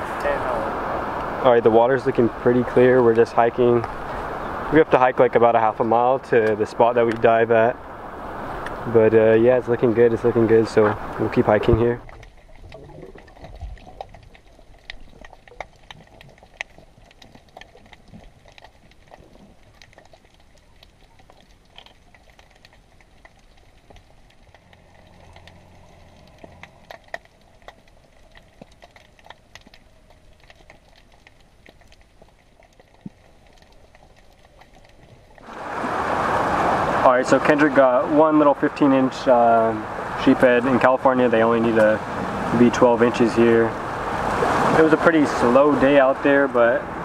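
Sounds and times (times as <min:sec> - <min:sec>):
crackle of sharp clicks: 0:06.4 - 0:07.3, 0:10.8 - 0:35.5.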